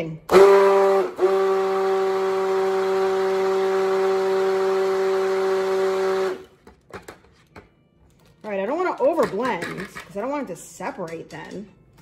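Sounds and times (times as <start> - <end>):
stick blender motor hum: 0.3 - 6.5.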